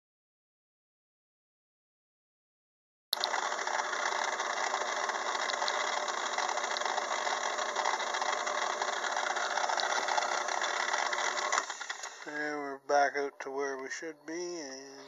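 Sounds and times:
lathe whirring: 3.2 - 12.4.

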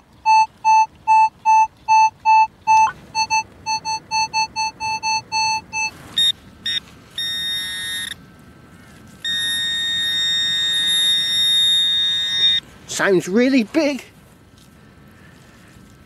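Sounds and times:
metal detector beeping: 0.0 - 8.2, 9.2 - 12.6
pinpointer buzzing tone: 0.0 - 8.2, 9.2 - 12.6.

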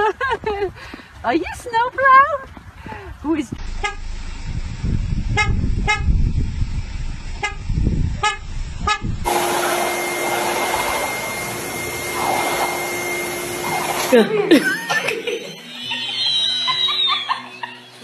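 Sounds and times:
low rumble: 3.5 - 13.6
van horn tooting: 3.6 - 4.2, 5.2 - 6.3, 7.4 - 10.5
motor whine: 3.6 - 17.7
air rushing from hose: 9.2 - 14.3.

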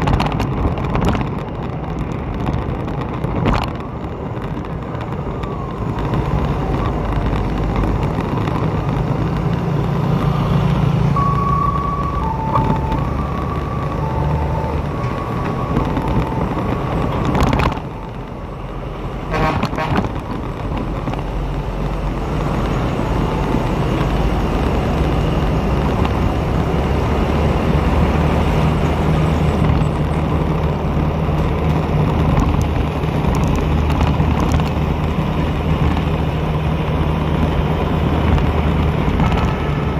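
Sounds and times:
motorbike engine hum: 0.0 - 39.9
tyre and wind noise on wet road: 0.0 - 39.9
two-tone beeping: 11.1 - 18.2.

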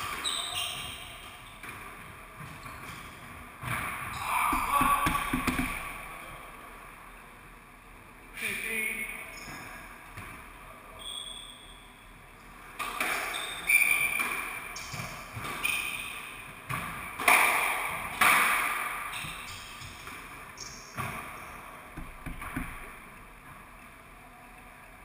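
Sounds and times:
squash ball hits echoing: 3.6 - 6.4, 16.7 - 19.3, 21.9 - 23.3
shoes squeaking on wooden floor: 4.1 - 6.0.

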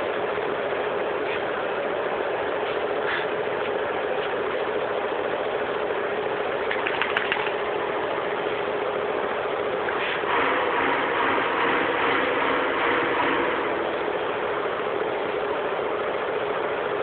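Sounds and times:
motor hum: 0.0 - 17.0
faint clicks: 6.7 - 7.6.

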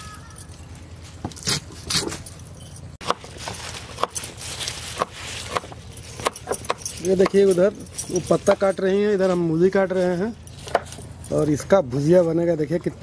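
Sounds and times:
leaves rustling: 3.0 - 12.3.

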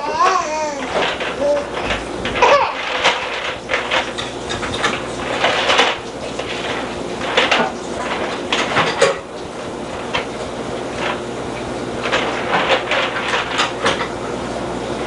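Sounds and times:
knocks and clatters of toys: 0.0 - 9.2, 12.0 - 14.2.

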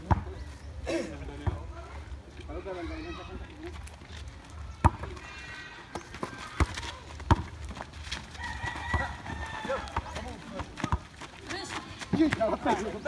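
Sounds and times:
basketball bouncing on dirt: 0.0 - 0.5, 1.4 - 1.8, 4.6 - 13.0
rooster crowing: 8.4 - 10.2.

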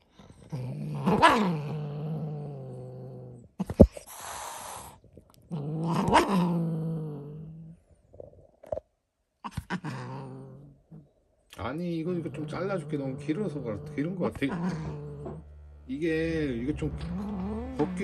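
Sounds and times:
cat growling and yowling: 0.4 - 3.8, 4.7 - 7.8, 9.5 - 11.0, 12.2 - 15.4, 17.0 - 18.0
cat hissing: 3.6 - 5.0.

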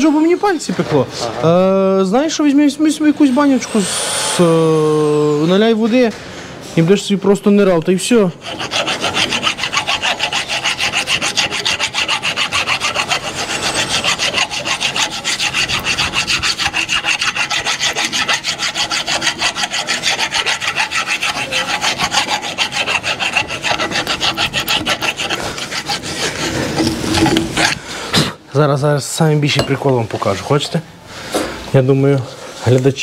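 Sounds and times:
tool rasping metal: 2.9 - 5.4, 8.3 - 27.9, 29.5 - 30.8.

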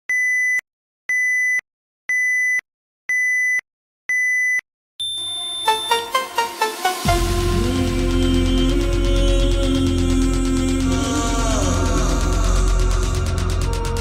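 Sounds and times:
high electronic beep: 0.1 - 7.3
electronic music: 5.1 - 14.0.

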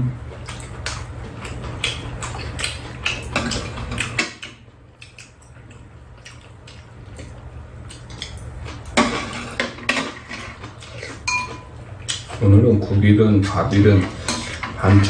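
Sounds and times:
low steady hum: 0.0 - 15.0
chopsticks and spoons clinking bowls: 8.1 - 12.4.

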